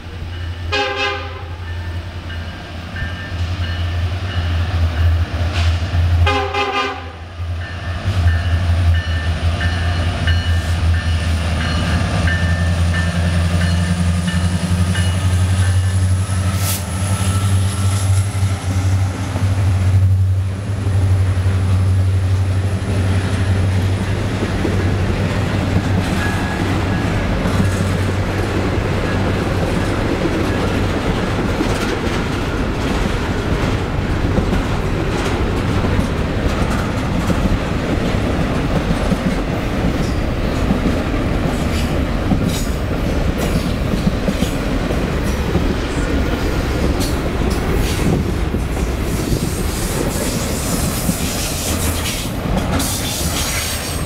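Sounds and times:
diesel locomotives rumbling: 0.0 - 54.0
train cars clickety-clack: 0.0 - 54.0
train horn: 0.7 - 1.8, 5.5 - 7.3
high wheel squeal: 16.3 - 18.2.

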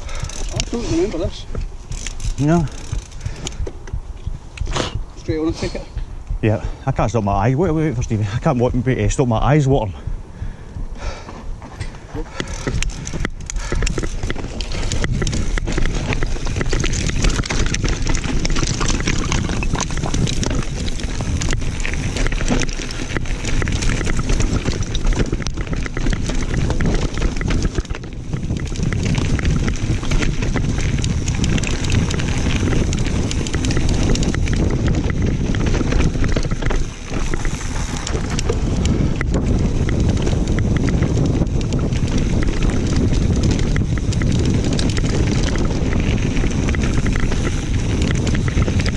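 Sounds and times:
bike rattling over bumps: 0.0 - 4.5, 7.2 - 48.9
wind noise on microphone: 0.0 - 48.9
tyres crunching over dirt and stones: 11.2 - 48.9.

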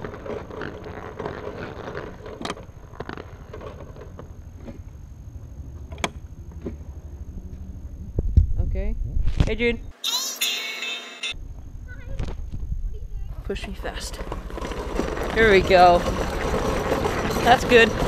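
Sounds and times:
go-kart clicks and knocks: 0.0 - 4.8, 13.6 - 18.0
wheels rumbling on asphalt: 0.0 - 9.2, 12.0 - 18.0.

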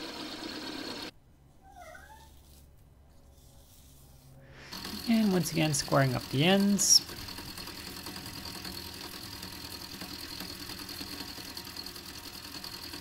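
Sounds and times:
milling machine motor hum: 0.0 - 1.1, 4.5 - 13.0
end mill cutting steel: 4.6 - 13.0.

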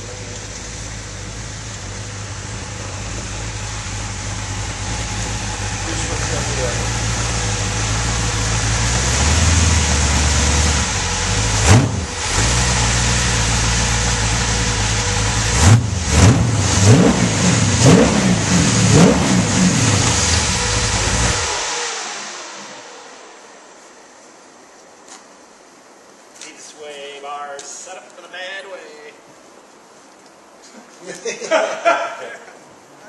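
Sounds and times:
buggy engine idling and revving: 0.0 - 22.8.

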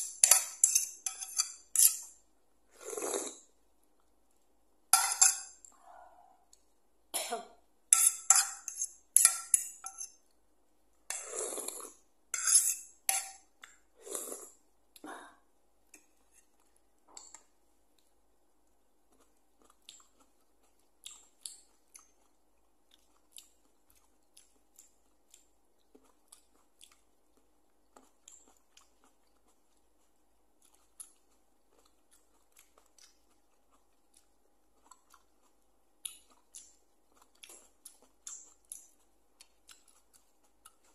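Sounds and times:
slurping noodles: 2.7 - 3.5, 11.2 - 12.0, 14.0 - 14.6
chewing grapes: 16.3 - 40.9.

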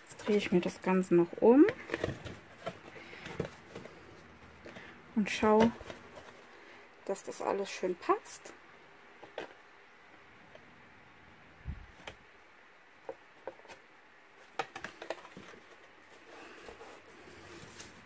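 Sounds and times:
cardboard box taps and rustles: 1.6 - 4.0.

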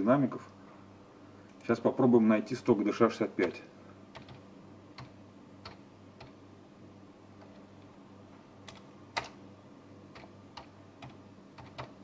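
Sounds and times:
faint steady hum: 0.0 - 12.0
keyboard keystrokes: 3.4 - 4.4, 8.6 - 9.4, 10.1 - 12.0.

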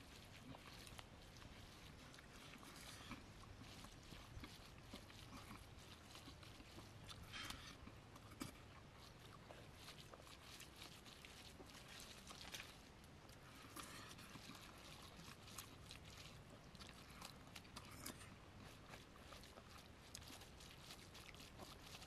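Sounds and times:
chewing: 0.0 - 22.0
squishing rice by hand: 0.0 - 22.0.

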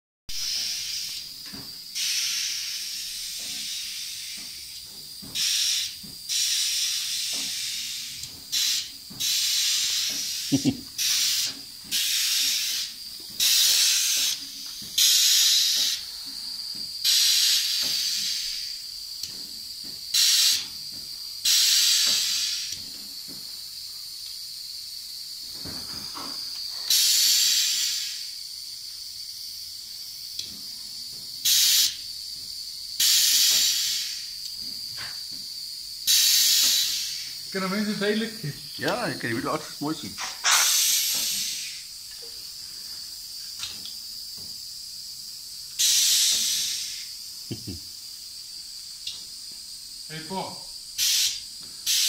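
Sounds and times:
compressed air hissing bursts: 0.3 - 52.0
faint steady hiss: 36.1 - 52.0.

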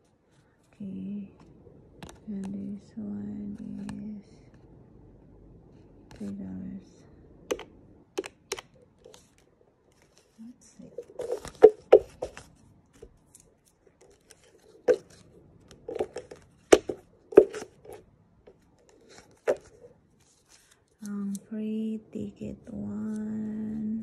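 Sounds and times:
cardboard tickets rustling: 9.0 - 18.0.

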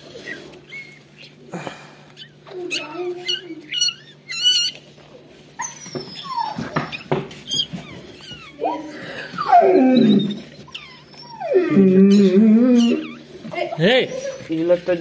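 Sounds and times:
puppy squeaking: 0.0 - 1.4, 2.2 - 14.8
dog whining: 0.0 - 14.8.

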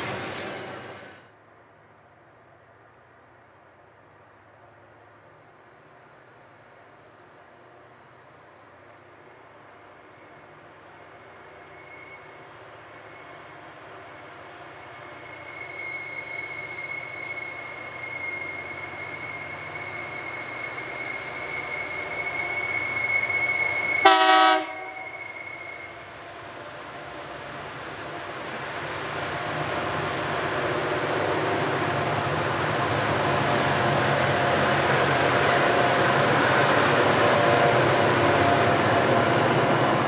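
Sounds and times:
train wheels squealing: 0.0 - 40.0
locomotive horn blast: 24.0 - 25.2.

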